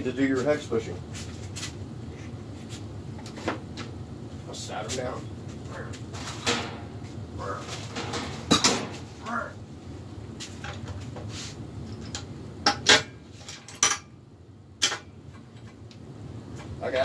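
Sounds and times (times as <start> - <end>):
metal tools clanking on metal: 6.1 - 6.9, 7.7 - 9.1, 11.9 - 14.1.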